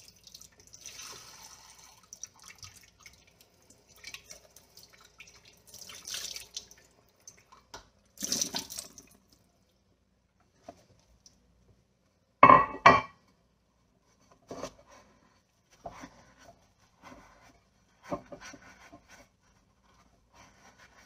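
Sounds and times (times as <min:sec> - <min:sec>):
tap water running and splashing: 0:00.0 - 0:09.5
pan knocking in sink: 0:12.4 - 0:13.2.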